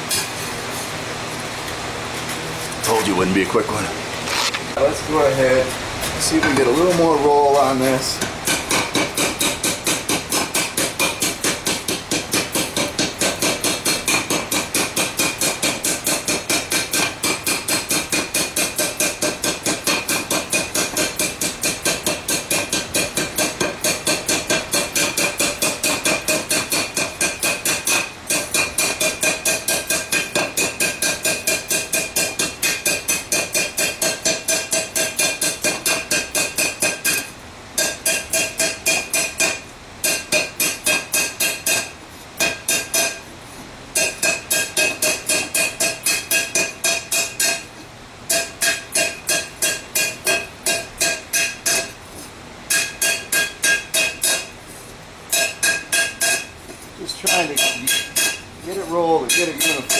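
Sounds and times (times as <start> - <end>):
hammer striking steel on anvil: 8.2 - 43.2, 44.0 - 47.7, 48.3 - 52.0, 52.7 - 54.5, 55.3 - 56.5, 57.2 - 58.4, 59.0 - 59.9.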